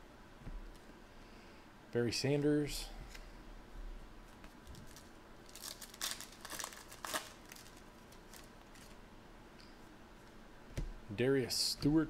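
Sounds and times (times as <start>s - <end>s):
foil wrapper crinkling and tearing: 4.5s - 9.0s.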